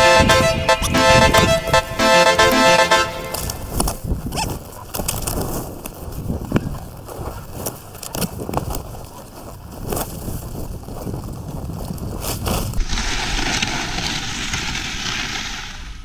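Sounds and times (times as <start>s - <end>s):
skis clattering over rough snow: 3.7s - 16.0s
skis hissing over packed snow: 12.2s - 16.0s.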